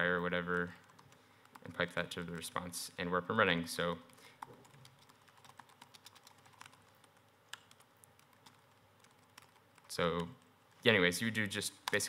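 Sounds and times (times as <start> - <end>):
typing on laptop keyboard: 0.5 - 2.0, 4.1 - 10.5.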